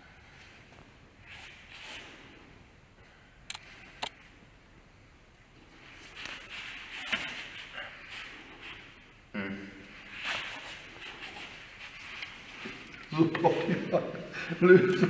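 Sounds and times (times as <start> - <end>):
sleeves swishing and rustling: 5.7 - 9.0, 10.0 - 13.7.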